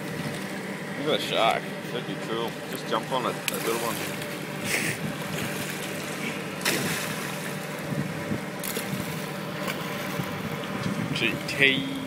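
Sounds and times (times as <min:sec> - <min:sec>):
boat engine droning: 0:00.0 - 0:12.0
sea noise: 0:00.0 - 0:12.0
wind: 0:00.0 - 0:12.0.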